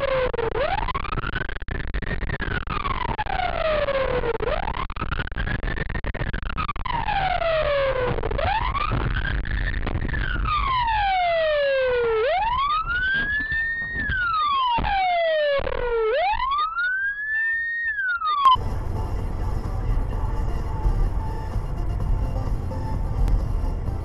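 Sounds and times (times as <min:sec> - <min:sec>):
emergency siren wailing: 0:02.8 - 0:04.6, 0:06.8 - 0:09.0, 0:10.2 - 0:24.0
road and engine rumble: 0:18.5 - 0:24.0.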